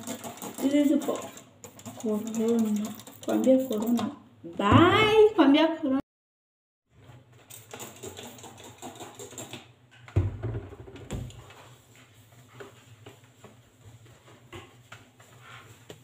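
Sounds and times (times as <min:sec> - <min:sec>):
cloth wiping counter: 0:11.4 - 0:16.0.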